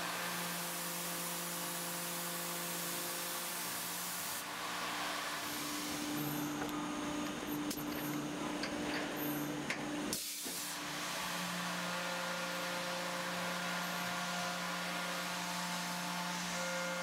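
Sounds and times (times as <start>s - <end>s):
air nozzle hissing: 10.1s - 10.8s.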